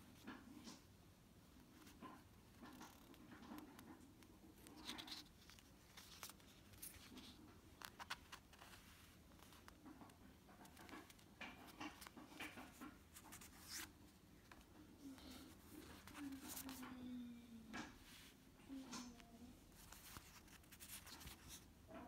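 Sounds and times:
paper sticker sheets rustling: 4.5 - 17.0, 17.8 - 21.7.

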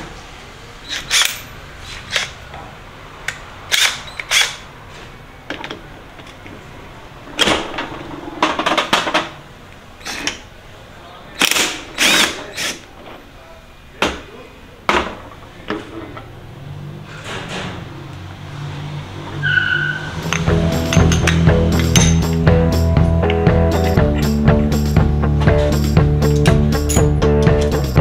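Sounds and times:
impact wrench rattling: 11.4 - 12.9, 20.3 - 22.4
sharp metal knocks: 20.2 - 22.4.

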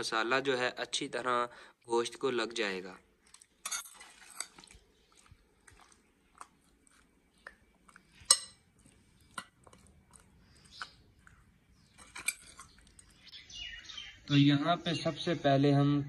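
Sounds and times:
metal spoon clinking on ceramic dishes: 3.6 - 4.6, 8.2 - 8.6, 11.9 - 13.1.

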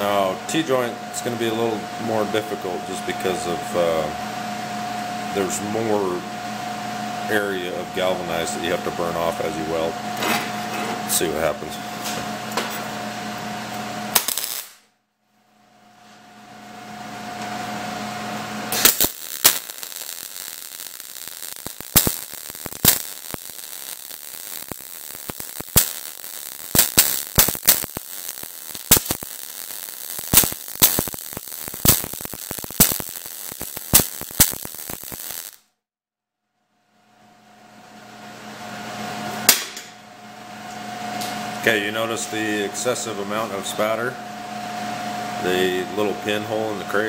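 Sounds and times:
steady hum: 0.0 - 14.8, 15.5 - 35.5
welding arc crackling and popping: 14.1 - 14.9, 18.7 - 35.7.

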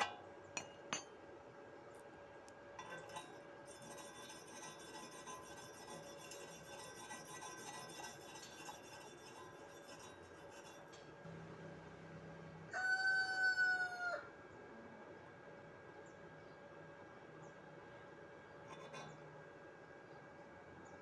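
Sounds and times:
wire brush scrubbing steel: 2.8 - 11.1, 18.7 - 19.2
rooster crowing: 12.7 - 14.4.

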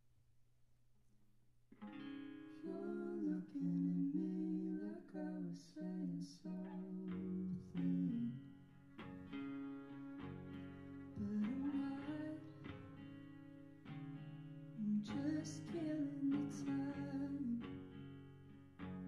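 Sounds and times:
electric guitar: 1.7 - 19.0
strummed acoustic guitar: 1.7 - 19.0
person singing: 2.6 - 8.5, 11.1 - 12.8, 14.8 - 17.8.

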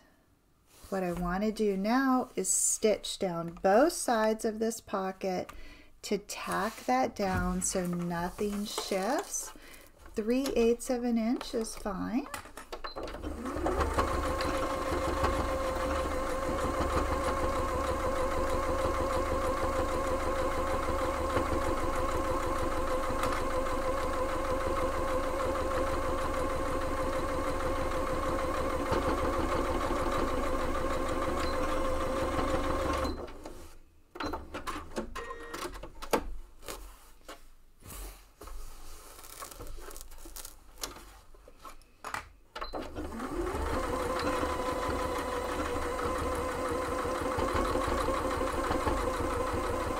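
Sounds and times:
sewing machine motor humming: 13.3 - 33.0, 43.0 - 49.9.

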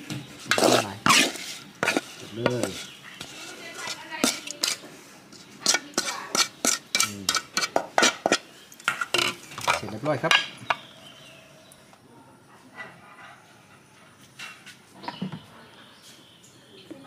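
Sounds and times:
spoon scraping a plate: 0.4 - 9.8.

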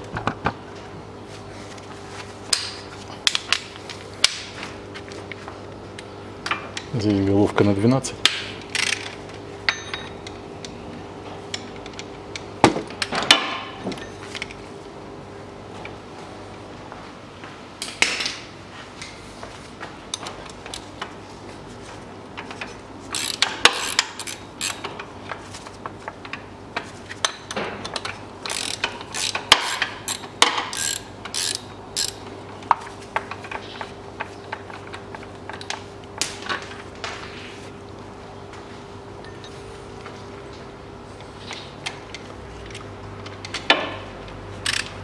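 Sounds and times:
ratchet wrench clicking: 8.7 - 9.2, 23.1 - 24.8, 28.4 - 32.2, 44.6 - 44.9.

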